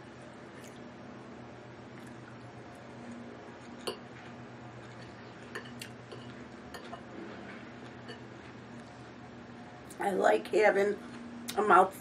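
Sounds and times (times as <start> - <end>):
fork clinking on a plate: 4.9 - 7.1.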